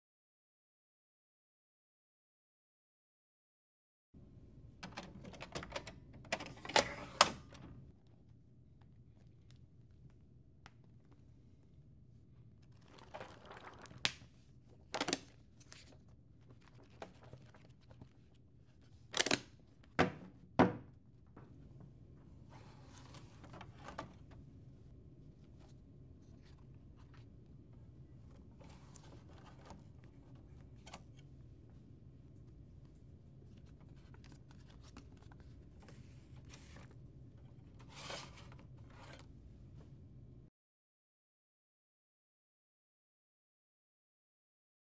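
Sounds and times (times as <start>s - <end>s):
low room hum: 4.2s - 40.5s
paper stack knocking on table: 20.0s - 20.9s
paper sliding and rustling on plastic: 22.4s - 24.3s, 37.7s - 39.3s.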